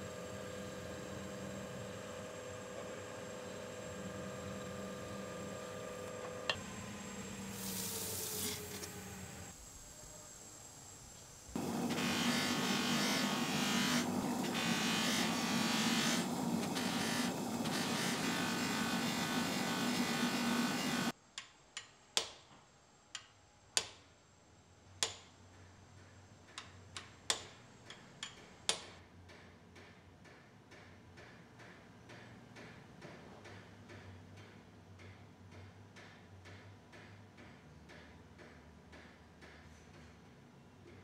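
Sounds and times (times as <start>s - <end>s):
electric machine humming: 0.0s - 9.6s, 11.6s - 21.1s.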